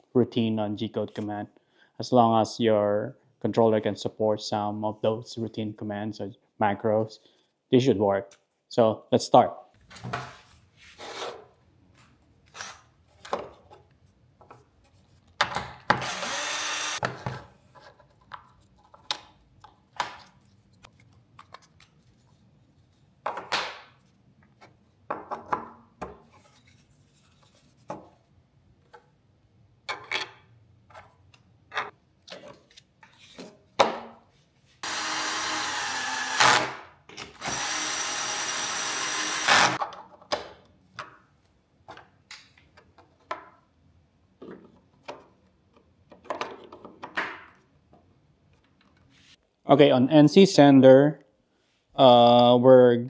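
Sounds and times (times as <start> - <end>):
cordless drill driving screws: 15.9 - 17.0, 34.8 - 36.7, 37.4 - 39.8.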